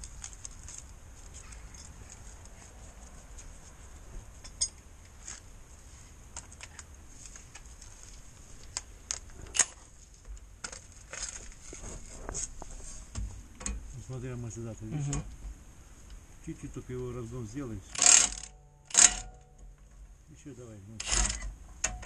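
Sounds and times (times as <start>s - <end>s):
metal tools clinking: 1.5s - 2.2s, 4.4s - 4.8s.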